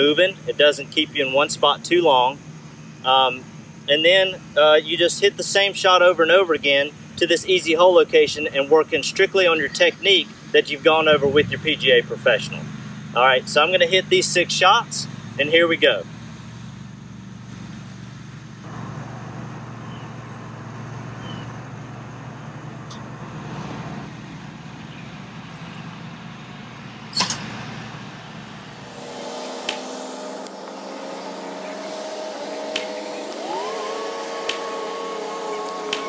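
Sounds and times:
steady engine hum: 0.0s - 36.0s
golf club striking ball: 27.1s - 27.8s, 29.6s - 30.0s
steady tones rising in pitch: 27.6s - 36.0s.

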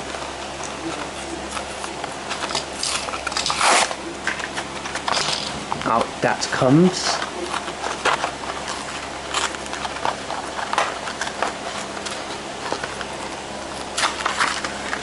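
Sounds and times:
cardboard box torn open: 2.8s - 4.0s.

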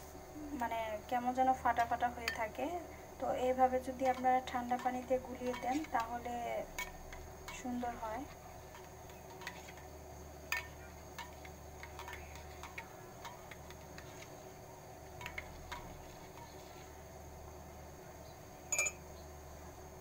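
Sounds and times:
faint low hum: 0.0s - 20.0s
metal spoon clinking in steel bowl: 2.2s - 2.5s, 4.0s - 7.8s, 18.7s - 19.0s.

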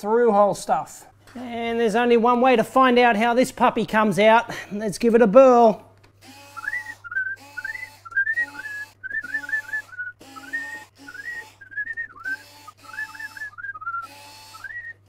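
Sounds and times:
electric screwdriver whirring: 6.2s - 14.9s
man whistling a tune: 6.6s - 15.0s.

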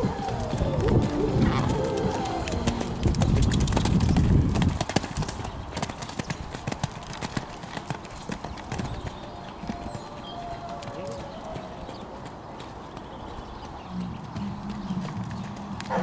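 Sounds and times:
heavy low rumble: 0.0s - 4.7s
hoofbeats on sand: 0.0s - 16.0s.

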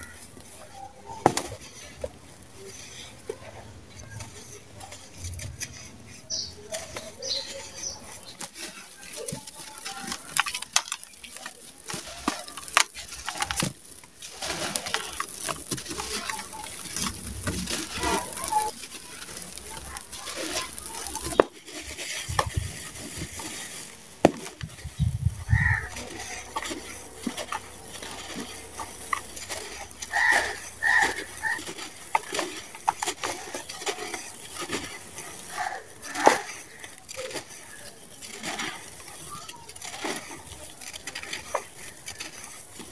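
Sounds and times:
sand-cement crunching and crumbling: 0.0s - 42.9s
grit falling into a plastic tub: 4.1s - 42.9s
bird cooing: 25.4s - 32.4s, 35.4s - 36.8s.

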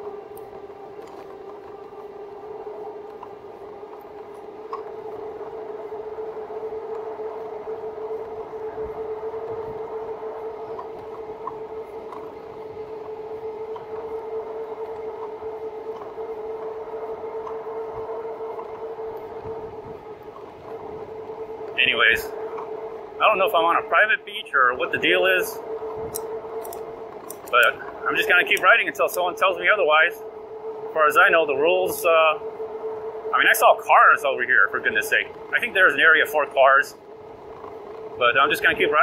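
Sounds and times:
e-bike hub motor whining: 0.0s - 39.0s.

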